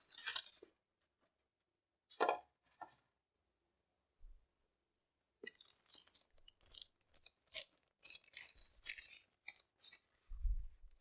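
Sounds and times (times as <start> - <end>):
plastic and paper crinkling: 5.4 - 11.0.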